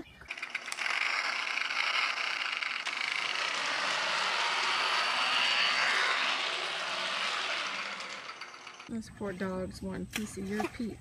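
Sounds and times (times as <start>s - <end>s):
toy motorcycle whirring: 0.2s - 8.9s.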